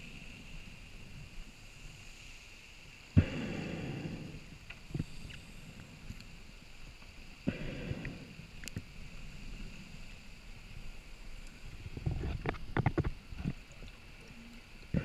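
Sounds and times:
underwater gush of bubbles: 7.4s - 9.8s.

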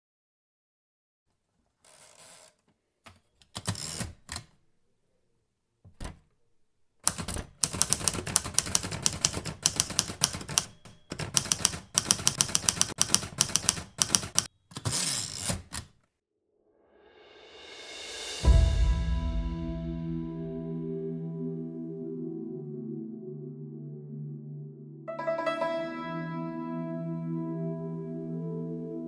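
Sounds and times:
typewriter carriage rasp: 3.6s - 4.4s, 7.1s - 15.9s
typewriter keys clacking: 7.1s - 15.9s.

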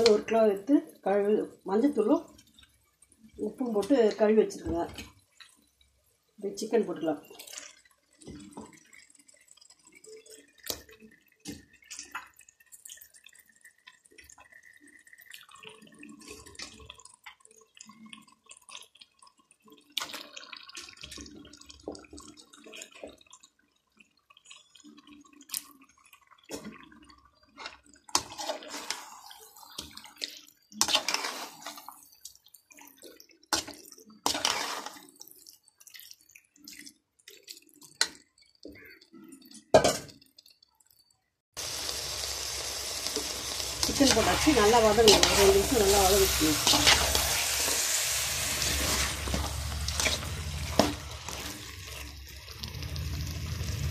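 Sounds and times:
metal spoon stirring in pan: 0.0s - 0.6s, 6.6s - 15.3s, 27.5s - 39.0s, 41.9s - 53.9s.

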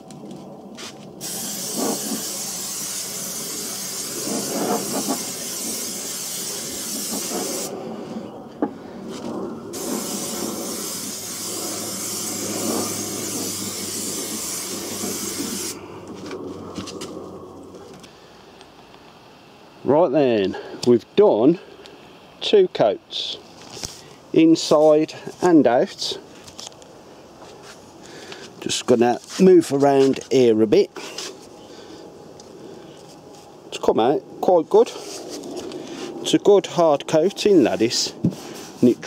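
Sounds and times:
spray paint can hissing: 1.2s - 7.8s, 9.7s - 15.8s.

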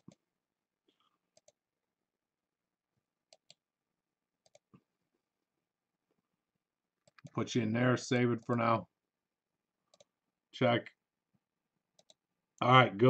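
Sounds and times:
computer mouse clicks: 1.3s - 1.6s, 3.3s - 3.6s, 4.4s - 4.8s, 7.0s - 7.4s, 9.9s - 10.2s, 12.0s - 12.7s.

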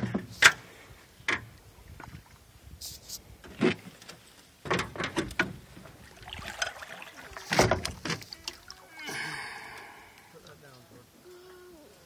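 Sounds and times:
knocks and clunks on a boat: 0.0s - 0.3s, 4.6s - 6.1s, 7.4s - 8.6s.

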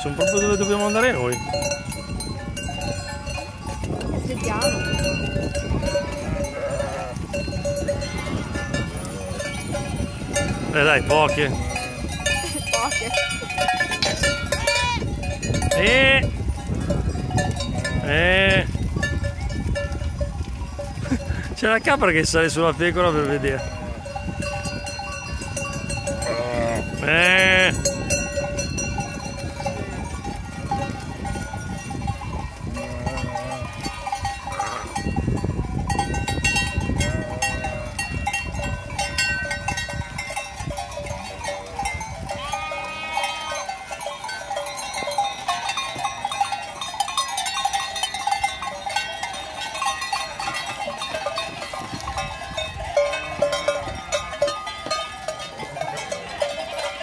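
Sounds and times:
animal bells ringing: 0.0s - 57.0s
sheep and goats bleating: 4.3s - 18.8s, 25.8s - 28.4s, 32.5s - 35.2s, 42.2s - 44.2s.

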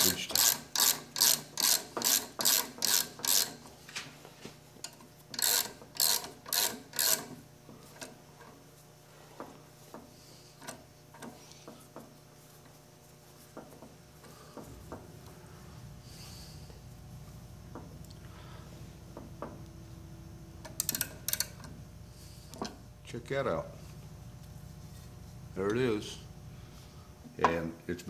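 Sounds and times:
hand ratchet clicking: 0.0s - 3.6s, 4.8s - 8.1s, 20.6s - 21.7s.

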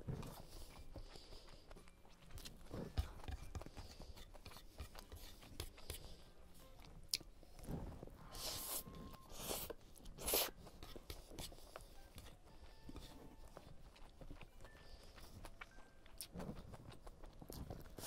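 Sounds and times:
chewing with wet clicks: 0.1s - 7.7s, 9.0s - 18.0s
slurping noodles: 8.2s - 10.6s.

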